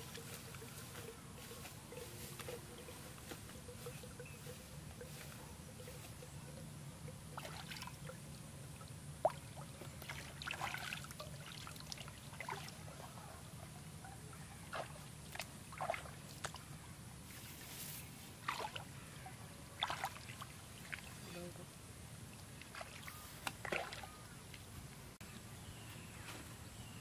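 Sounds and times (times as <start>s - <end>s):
splashes of shallow water: 7.3s - 13.3s, 14.3s - 16.7s, 18.4s - 19.0s, 19.8s - 21.4s, 22.3s - 24.7s.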